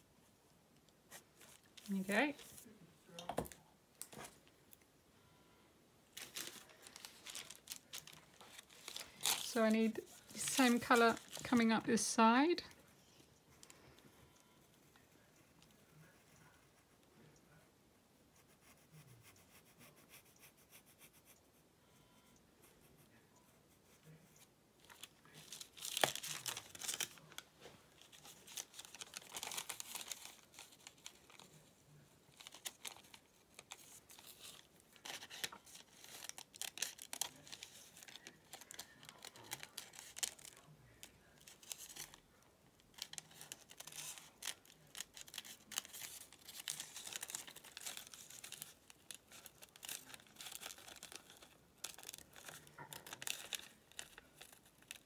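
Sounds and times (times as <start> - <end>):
thin paper rustling and crinkling: 6.2 - 11.8, 24.8 - 42.2, 42.9 - 55.0.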